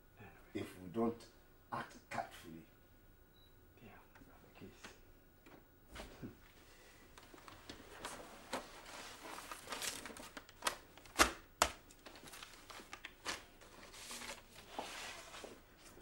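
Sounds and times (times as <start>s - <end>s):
paper rustling and crinkling: 7.2s - 16.0s.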